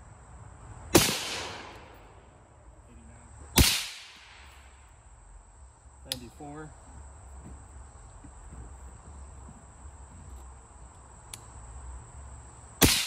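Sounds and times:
insects chirring: 0:00.0 - 0:13.0
faint click: 0:11.3 - 0:11.5.

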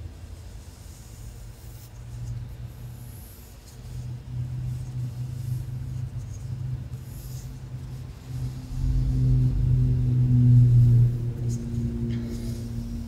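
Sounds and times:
low rumble: 0:07.8 - 0:13.0.

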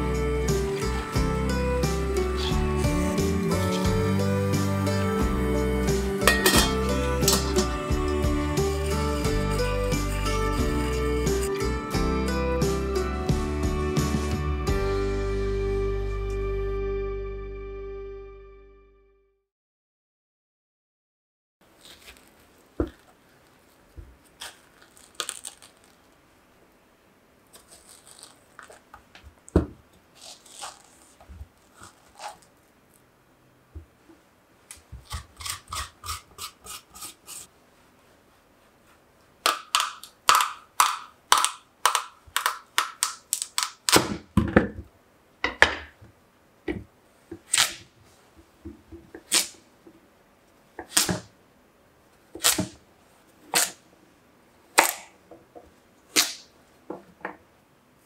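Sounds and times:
metal spoon scraping squash: 0:06.2 - 0:11.7, 0:30.2 - 0:32.5, 0:35.1 - 0:37.5.

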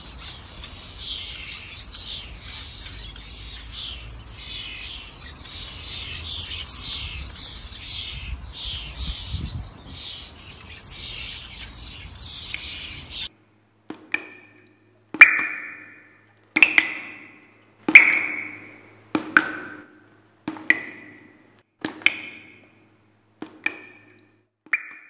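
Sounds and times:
small birds chirping: 0:00.0 - 0:13.3
wind noise: 0:05.5 - 0:13.3.

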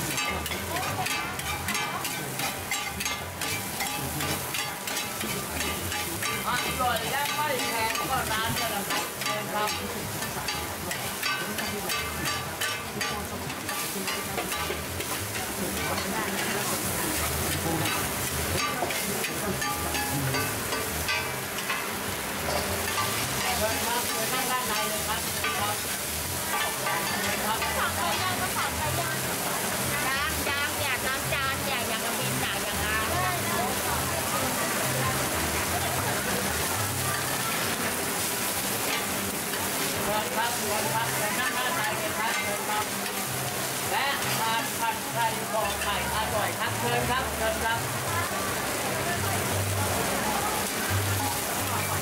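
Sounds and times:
metal spatulas scraping a pan: 0:00.0 - 0:28.6
frying oil sizzling: 0:00.0 - 0:52.0.

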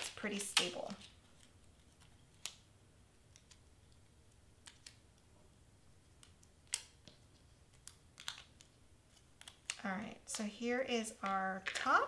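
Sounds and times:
small clicks and taps: 0:06.2 - 0:09.8.

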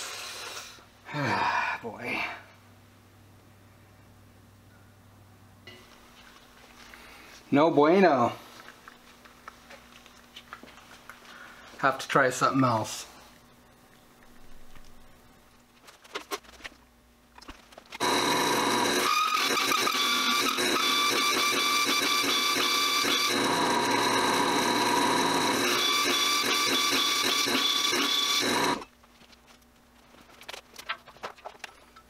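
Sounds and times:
hole saw screeching through steel: 0:18.1 - 0:28.8.

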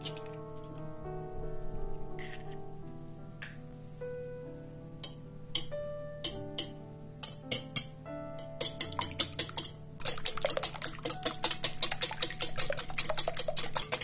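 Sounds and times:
wire whisk clinking on glass bowl: 0:05.0 - 0:07.9, 0:08.6 - 0:14.0.

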